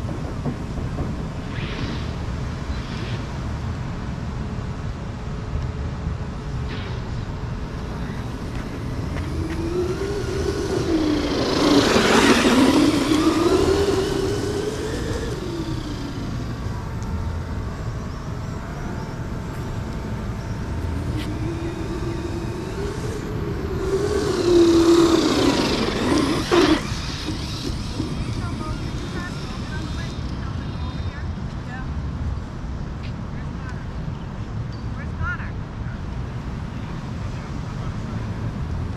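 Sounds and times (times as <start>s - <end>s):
electric motor whining: 7.7s - 31.7s.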